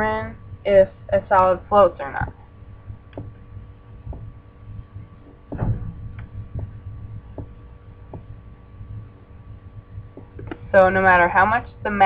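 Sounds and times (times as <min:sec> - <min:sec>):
low electrical hum: 0:00.0 - 0:12.0
soft thump: 0:05.4 - 0:08.3.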